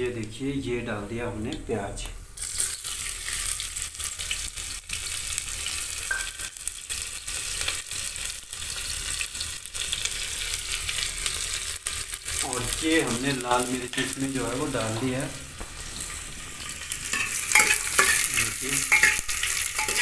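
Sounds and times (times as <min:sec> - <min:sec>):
onion sizzling in hot oil: 0:00.2 - 0:20.0
crackles and pops: 0:01.5 - 0:20.0.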